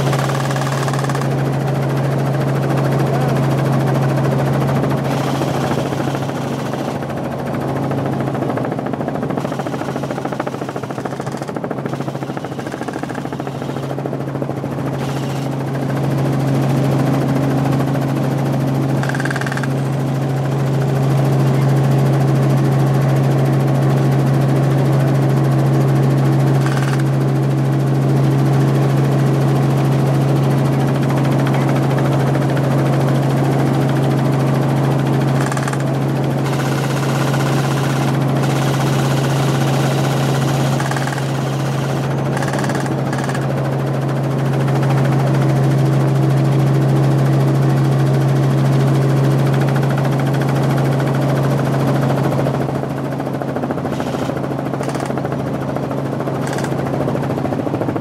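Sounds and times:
helicopter engine and rotor drone: 0:00.0 - 0:58.0.

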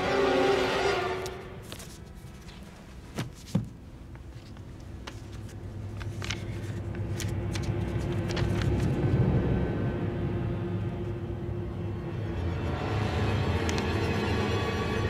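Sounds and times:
low drone: 0:06.2 - 0:15.0.

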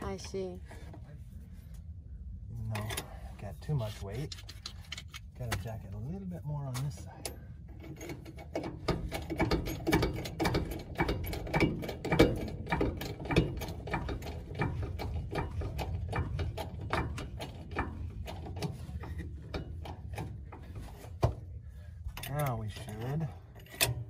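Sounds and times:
trolley jack handle clicking and creaking: 0:07.8 - 0:21.2, 0:22.2 - 0:24.0.

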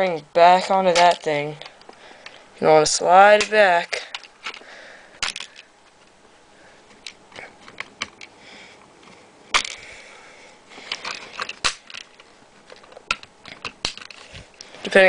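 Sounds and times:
plastic parts clicking: 0:03.4 - 0:06.0, 0:06.9 - 0:08.3, 0:09.5 - 0:09.8, 0:10.8 - 0:14.7.

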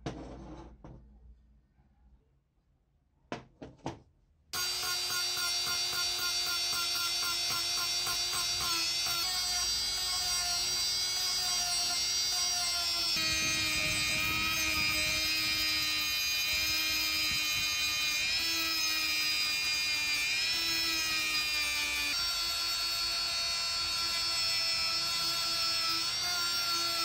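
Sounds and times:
rotary tool motor whine: 0:04.6 - 0:27.0
grinding hiss: 0:09.2 - 0:22.2.

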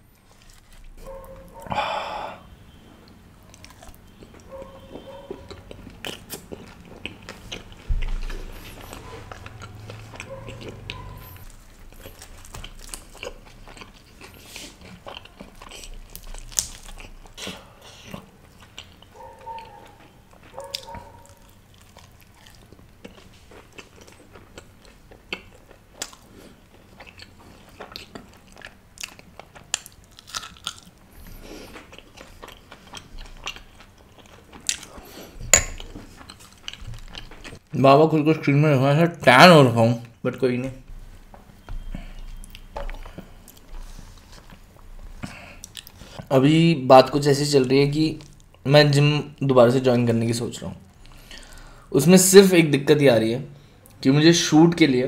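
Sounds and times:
biting and chewing: 0:00.1 - 0:01.8, 0:03.1 - 0:37.7.

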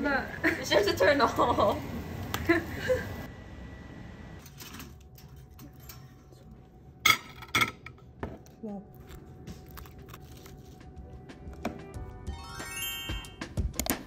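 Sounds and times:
dishes and cutlery clinking: 0:04.5 - 0:06.4.

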